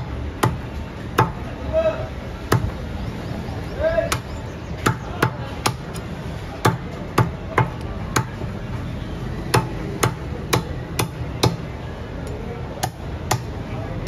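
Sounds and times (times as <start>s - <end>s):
cleaver chopping on wooden block: 2.5s - 2.8s, 4.1s - 8.4s, 9.5s - 11.7s.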